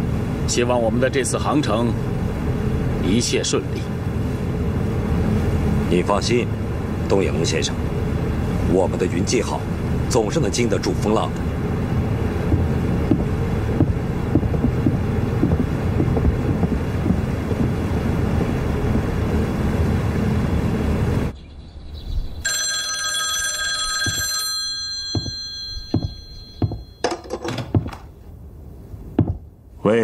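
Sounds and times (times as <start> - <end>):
wind noise: 12.5 - 19.1
telephone bell ringing: 22.4 - 27.2.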